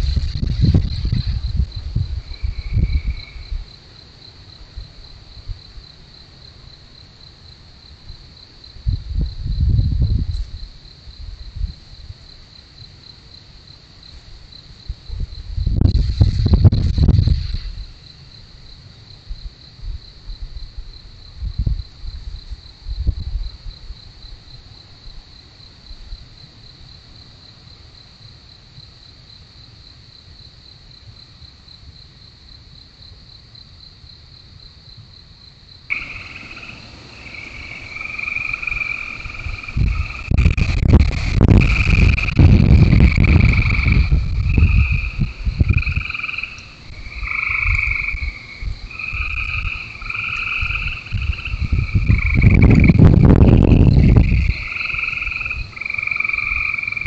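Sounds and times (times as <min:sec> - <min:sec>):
insects trilling: 0:00.0 - 0:57.0
frogs calling: 0:02.1 - 0:03.8, 0:35.9 - 0:57.0
low rumbling and crunching: 0:35.9 - 0:46.0.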